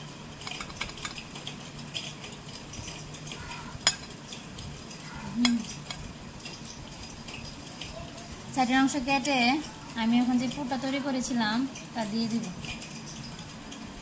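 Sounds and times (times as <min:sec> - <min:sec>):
blade clinking on plate: 0:02.9 - 0:04.2.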